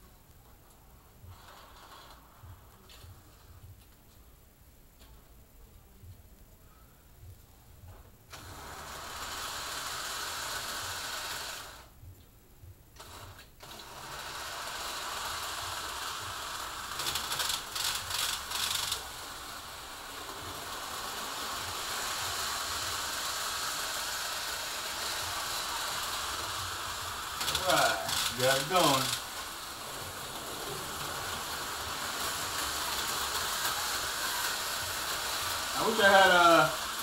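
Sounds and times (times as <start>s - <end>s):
model train motor whirring: 1.3s - 2.4s, 8.3s - 11.9s, 13.0s - 37.0s
wheels rattling over rails: 8.3s - 11.8s, 13.0s - 37.0s.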